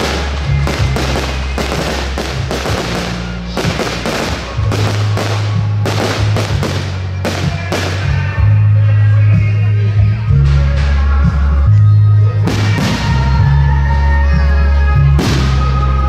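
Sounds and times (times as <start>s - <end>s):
fireworks bursting with loud bangs: 0.0s - 8.4s, 12.4s - 13.5s, 15.2s - 15.8s
music with steady bass: 0.0s - 16.0s.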